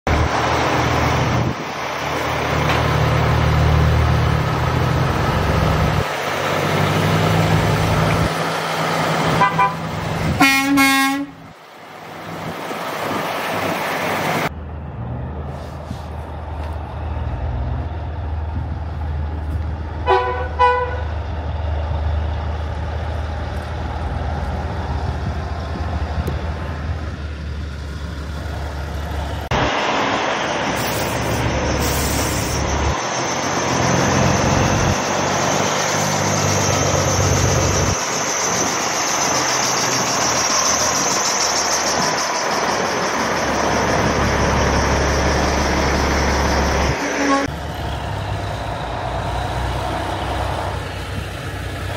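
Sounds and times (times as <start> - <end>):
truck diesel engines rumbling: 0.1 - 51.9
truck air horn blast: 9.4 - 11.4, 20.0 - 21.1, 47.0 - 47.5
short horn toots: 10.4 - 11.4, 20.1 - 21.1, 47.0 - 47.5.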